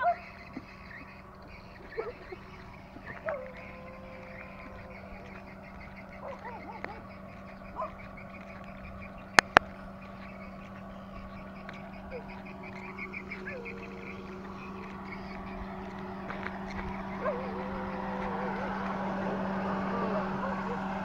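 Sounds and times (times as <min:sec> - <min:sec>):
frogs calling: 0:00.0 - 0:21.0
steady low hum: 0:00.0 - 0:21.0
sharp clicks: 0:08.5 - 0:09.8.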